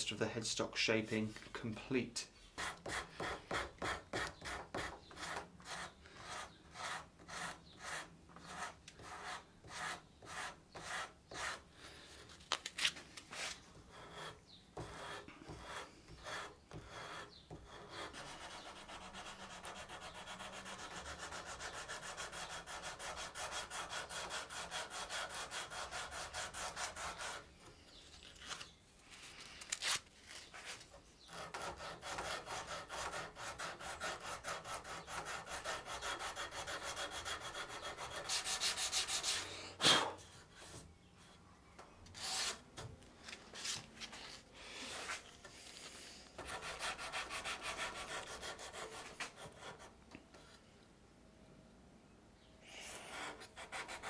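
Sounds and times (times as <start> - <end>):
hand file scraping wood: 2.6 - 11.7, 13.3 - 27.5, 30.5 - 40.8, 46.4 - 49.9, 52.9 - 54.0.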